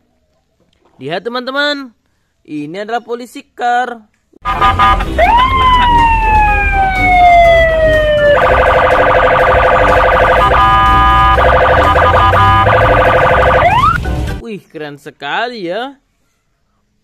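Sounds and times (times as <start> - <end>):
police siren: 4.5 - 14.0
low traffic rumble: 4.6 - 9.6.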